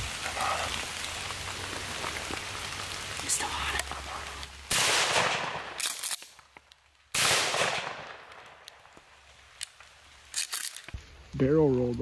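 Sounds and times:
shotgun blasts: 0:04.7 - 0:06.2, 0:07.1 - 0:08.5.

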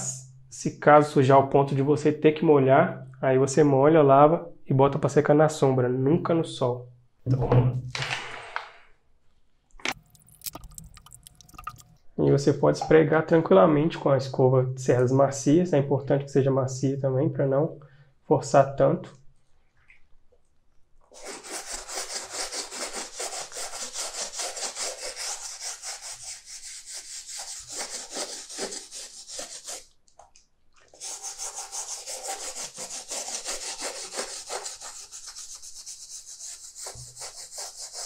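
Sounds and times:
brush scrubbing leather: 0:21.2 - 0:29.9, 0:31.0 - 0:38.0.

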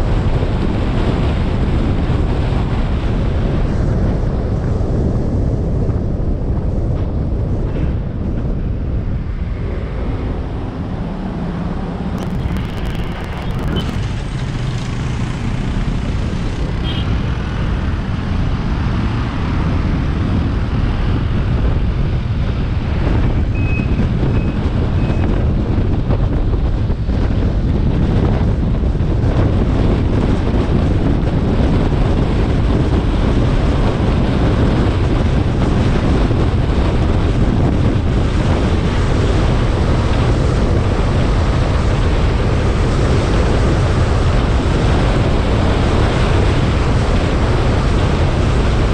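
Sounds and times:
car road noise rumble: 0:00.0 - 0:48.9
wind buffeting microphone: 0:00.0 - 0:48.9
short high beeps: 0:12.2 - 0:14.4.

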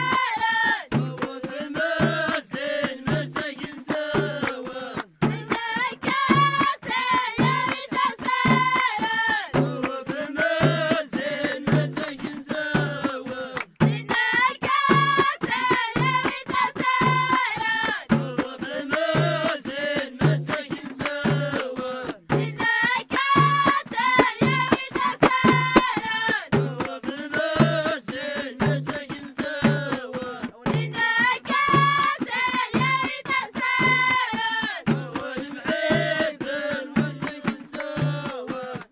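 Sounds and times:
children singing: 0:00.0 - 0:00.8, 0:14.0 - 0:18.0, 0:22.5 - 0:26.4, 0:30.8 - 0:34.5
steady drum beat: 0:00.0 - 0:38.9.

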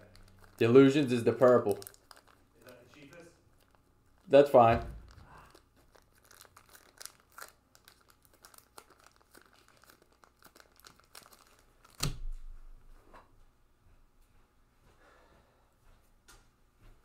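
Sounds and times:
foil wrappers crinkling and tearing: 0:00.0 - 0:12.2
loud thump: 0:04.6 - 0:05.1.

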